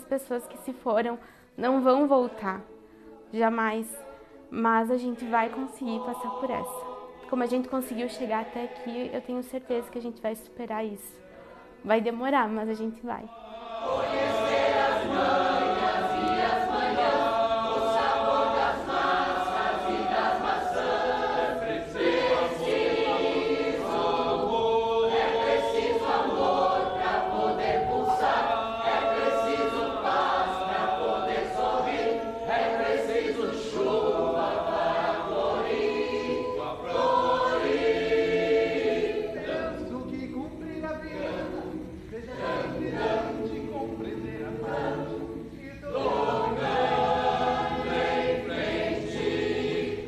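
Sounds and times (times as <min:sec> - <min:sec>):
choir singing: 0:01.6 - 0:50.0.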